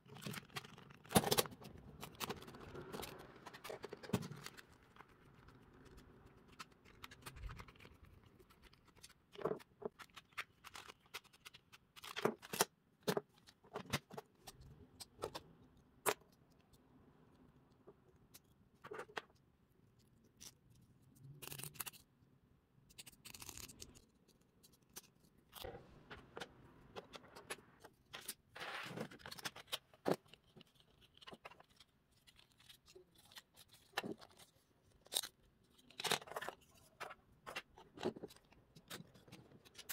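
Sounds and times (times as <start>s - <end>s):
small parts clicking and scraping: 18.2s - 22.2s.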